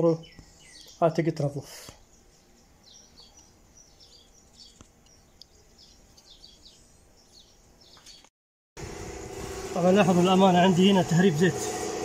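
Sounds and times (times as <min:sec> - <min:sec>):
faint bird chirping: 0:00.0 - 0:08.3
outdoor background noise: 0:00.0 - 0:12.0.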